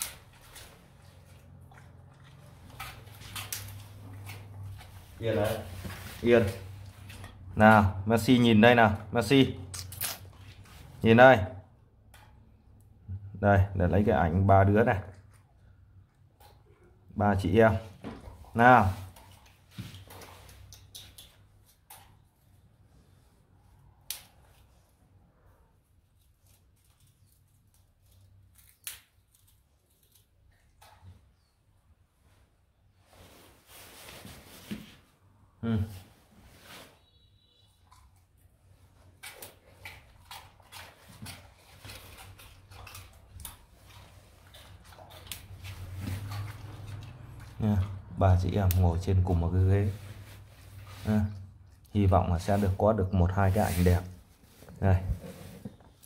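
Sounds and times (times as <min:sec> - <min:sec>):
dogs crunching treats: 0:00.0 - 0:05.2, 0:39.0 - 0:48.6.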